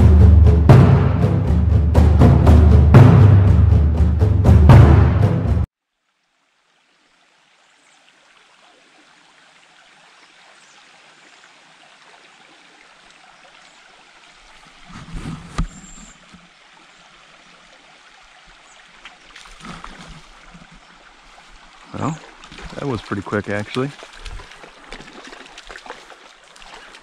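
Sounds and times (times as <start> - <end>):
low thumps: 0.0 - 5.7
stream water running: 5.7 - 27.0.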